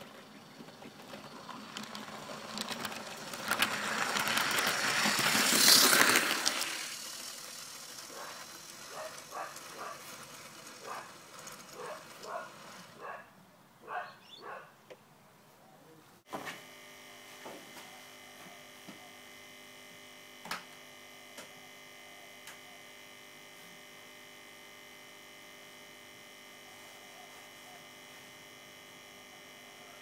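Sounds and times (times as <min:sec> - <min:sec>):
model train running past: 0:00.0 - 0:13.2.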